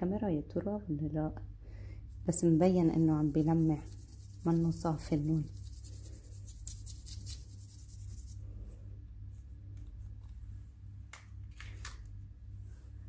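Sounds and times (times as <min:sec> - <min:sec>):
steady low hum: 0:00.0 - 0:13.0
paintbrush scratching on paper: 0:02.3 - 0:08.4.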